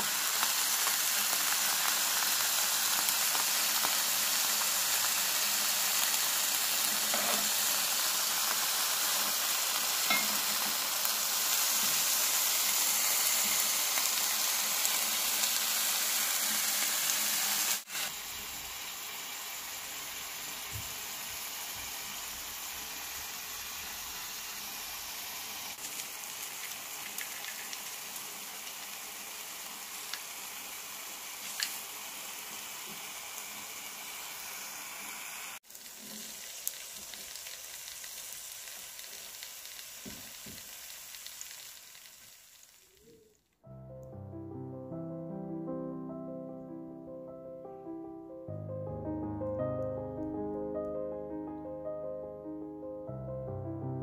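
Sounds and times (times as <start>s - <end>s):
steak sizzling in a frying pan: 0.0s - 43.1s.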